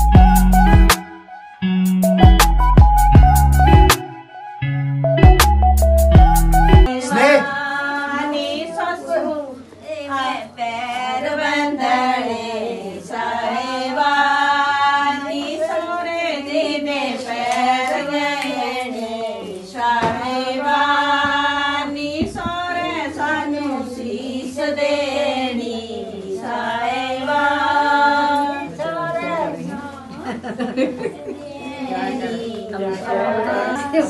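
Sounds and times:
women singing chant-like song: 0:06.7 - 0:30.4, 0:31.4 - 0:34.0.

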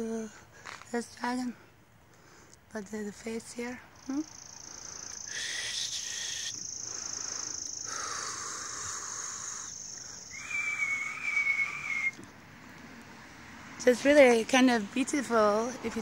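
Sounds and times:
thin high whistling tone: 0:05.2 - 0:07.9, 0:09.4 - 0:12.2
wavering lower whistle: 0:05.3 - 0:06.8, 0:09.3 - 0:12.2.

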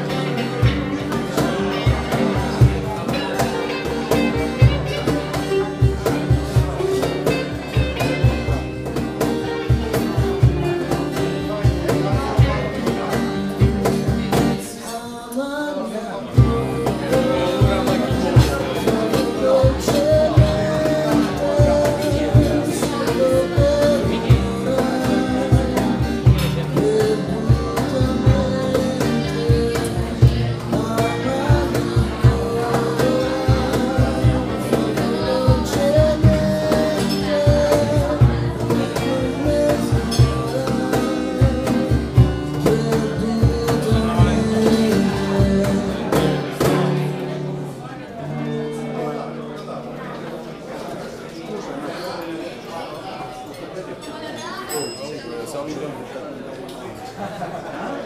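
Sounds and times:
live country-blues band: 0:00.0 - 0:51.3
person singing: 0:14.2 - 0:47.3.

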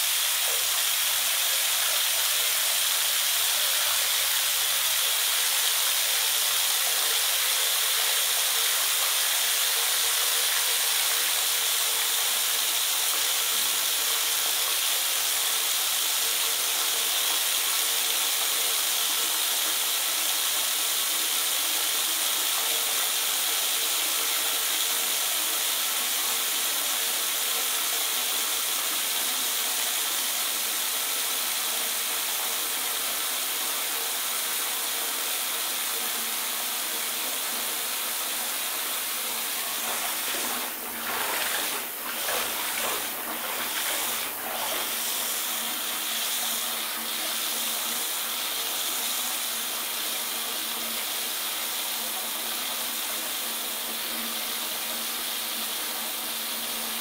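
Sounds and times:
tap running into bathtub: 0:39.3 - 0:45.6.

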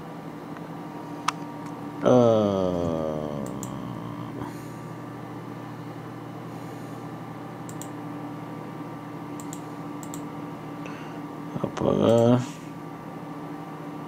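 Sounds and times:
computer equipment humming: 0:00.0 - 0:14.0
faint mouse clicks: 0:09.4 - 0:10.2.

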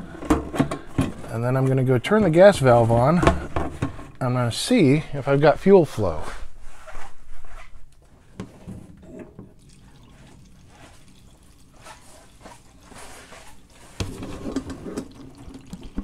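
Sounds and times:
fuel dripping into plastic can: 0:13.7 - 0:16.0.

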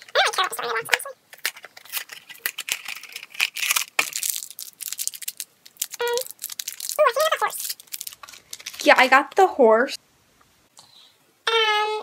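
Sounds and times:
packaging tearing and crinkling: 0:01.3 - 0:09.0.

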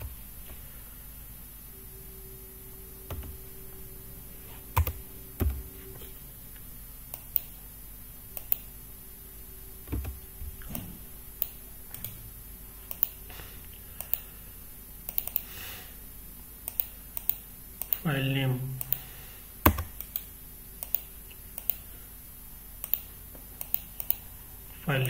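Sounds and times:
computer keyboard typing: 0:03.1 - 0:03.4, 0:04.8 - 0:05.7, 0:08.4 - 0:08.7, 0:12.9 - 0:13.2, 0:15.1 - 0:15.5, 0:16.6 - 0:18.0, 0:19.7 - 0:21.8, 0:22.8 - 0:24.2
mouse clicks: 0:08.4 - 0:08.7, 0:15.1 - 0:15.5, 0:19.7 - 0:21.8.

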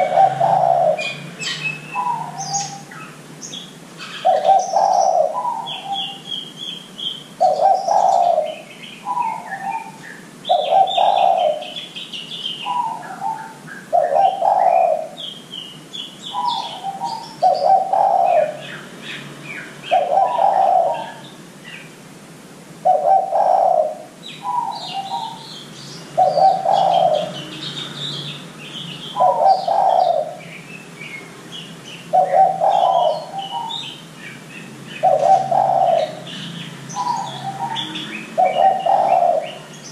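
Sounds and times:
dove cooing: 0:00.0 - 0:03.2, 0:04.0 - 0:06.4, 0:07.4 - 0:12.0, 0:12.6 - 0:15.3, 0:16.3 - 0:18.8, 0:19.8 - 0:21.3, 0:22.8 - 0:25.5, 0:26.1 - 0:27.6, 0:29.0 - 0:30.6, 0:32.1 - 0:34.0, 0:34.9 - 0:39.9
small birds chirping: 0:00.0 - 0:22.1, 0:22.8 - 0:39.9.

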